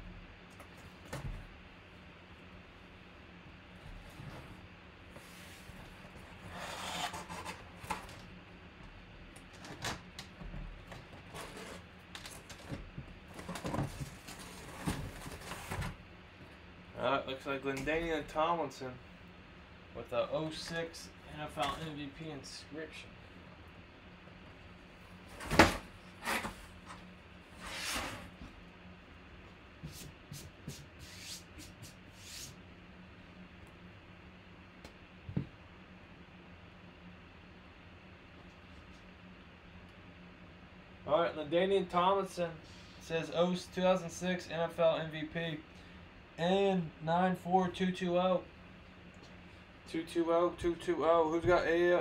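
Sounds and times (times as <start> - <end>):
cardboard rubbing and scraping: 5.1 - 7.9, 11.2 - 11.9, 25.6 - 28.4.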